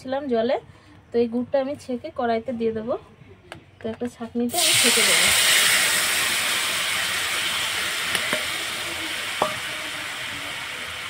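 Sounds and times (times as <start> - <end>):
liquid sizzling in a hot wok: 4.5 - 11.0.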